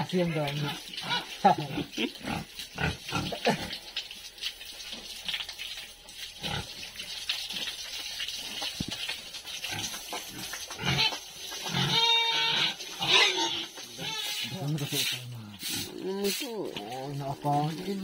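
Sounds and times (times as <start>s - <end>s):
pigs grunting: 0.3s - 3.8s, 6.4s - 6.8s, 9.6s - 16.4s.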